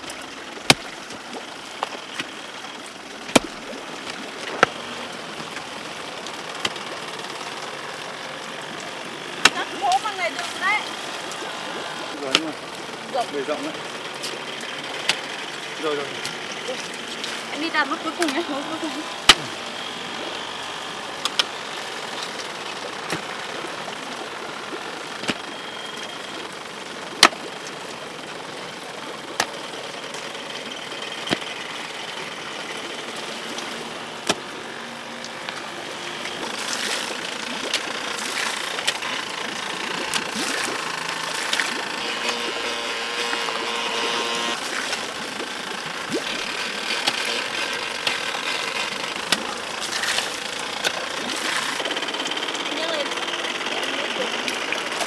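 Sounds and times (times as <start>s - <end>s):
hoe striking soil: 0.7s - 0.9s, 3.3s - 3.6s, 4.5s - 4.9s, 9.4s - 10.1s, 19.2s - 19.6s, 34.2s - 34.5s, 46.2s - 51.9s.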